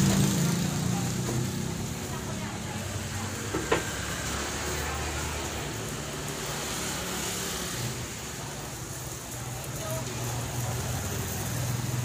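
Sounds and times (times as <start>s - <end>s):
vehicle engine humming: 0.0s - 8.0s.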